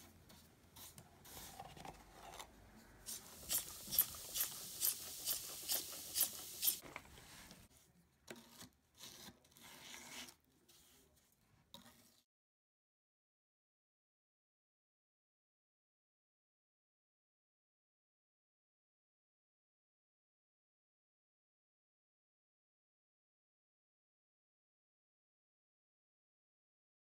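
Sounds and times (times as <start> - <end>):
tool scraping wet wood: 3.1 - 6.9, 8.3 - 11.0.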